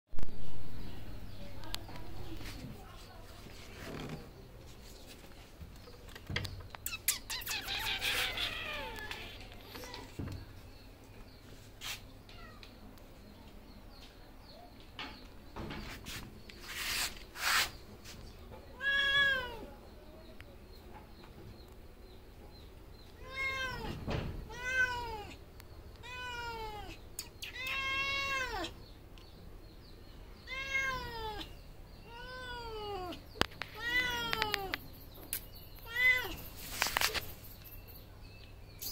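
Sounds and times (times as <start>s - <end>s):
cat meowing: 18.8s - 19.7s, 23.2s - 25.4s, 26.0s - 28.8s, 30.4s - 33.2s, 33.8s - 34.8s, 35.8s - 36.4s.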